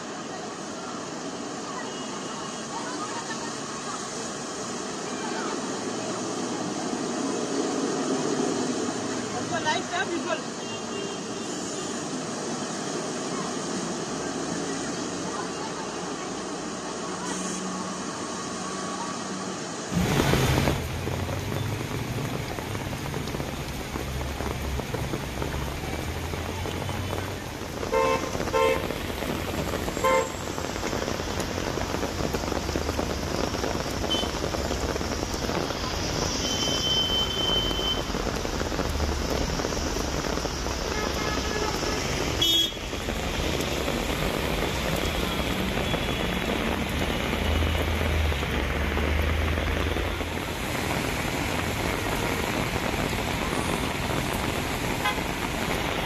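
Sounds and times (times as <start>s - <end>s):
steady rain: 0.0s - 56.0s
traffic noise: 0.0s - 56.0s
vehicle horn toots: 40.9s - 42.8s.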